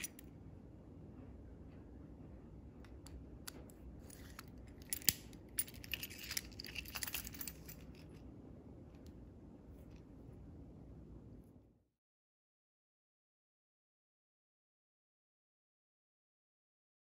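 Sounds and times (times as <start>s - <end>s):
keys jangling: 4.0s - 8.2s.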